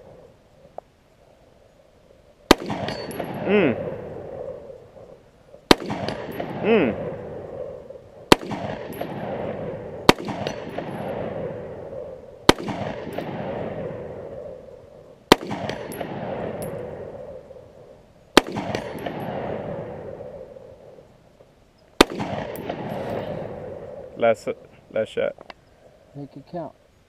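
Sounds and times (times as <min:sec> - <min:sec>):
rifle shots with echo: 0:02.5 - 0:05.0, 0:05.7 - 0:21.0, 0:22.0 - 0:24.3.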